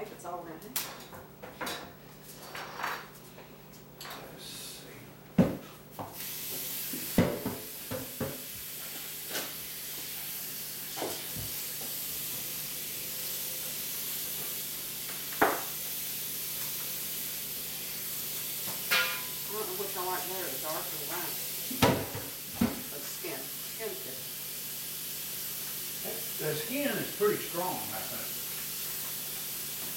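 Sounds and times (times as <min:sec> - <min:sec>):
steady hiss: 0:06.2 - 0:29.9
utensils and dishes clinking: 0:18.8 - 0:19.5.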